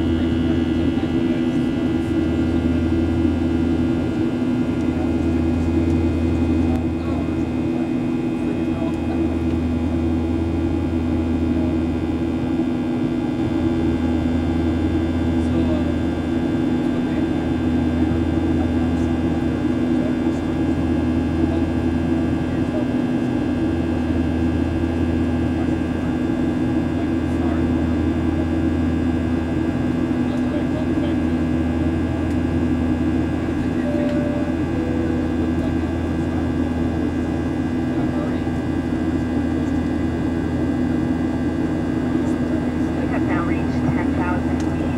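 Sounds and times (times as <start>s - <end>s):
jet engine drone in cabin: 0.0s - 44.9s
steady whining tones: 30.3s - 44.9s.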